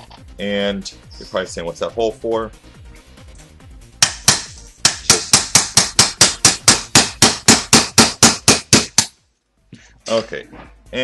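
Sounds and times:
hammer tapping pin punch: 0:04.0 - 0:09.1.

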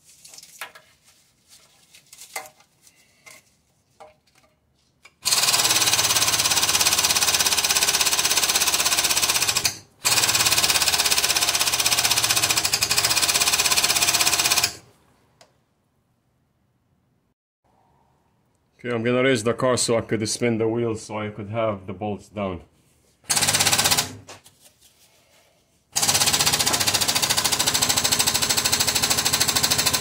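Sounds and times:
impact wrench hammering: 0:23.3 - 0:24.2, 0:26.0 - 0:30.0.

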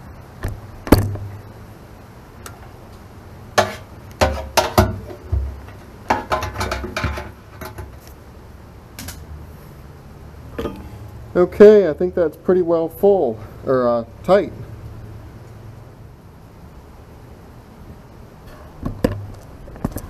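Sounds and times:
pliers clanking on metal tank: 0:10.6 - 0:11.0.

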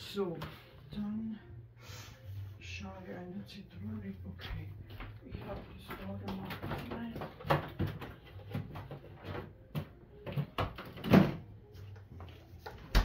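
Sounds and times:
kitchen items knocking and clattering: 0:05.4 - 0:11.5.

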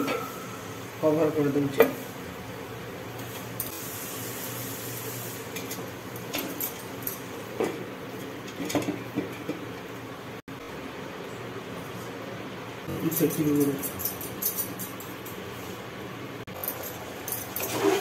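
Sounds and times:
wooden spatula scraping clay pot: 0:17.6 - 0:18.0.

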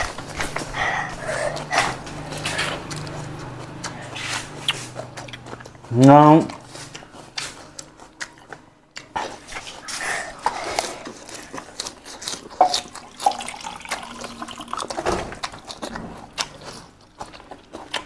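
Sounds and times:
person chewing and lip-smacking: 0:00.0 - 0:18.0
short wet mouth clicks: 0:04.6 - 0:05.4.

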